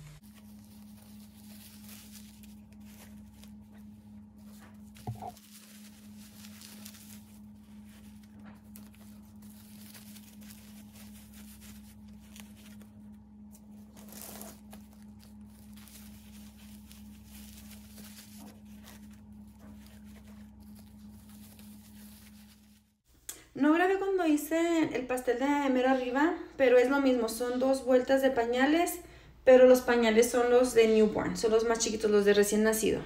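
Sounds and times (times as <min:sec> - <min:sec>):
diapers rustling and crinkling: 0:00.0 - 0:23.0
steady low hum: 0:00.0 - 0:33.0.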